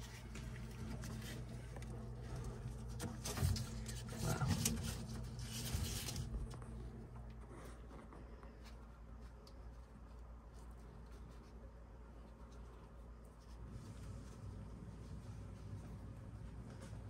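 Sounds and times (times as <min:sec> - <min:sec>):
rubber hose rubbing and scraping: 0:00.0 - 0:06.7
steady low hum: 0:00.0 - 0:17.0.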